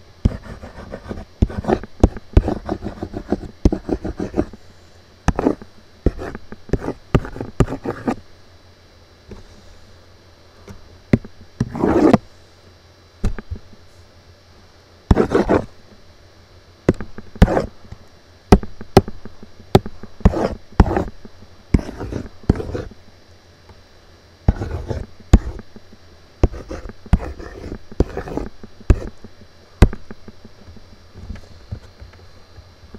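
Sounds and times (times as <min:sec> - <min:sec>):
mouse sliding across desk: 0:11.6 - 0:12.2, 0:24.5 - 0:25.6.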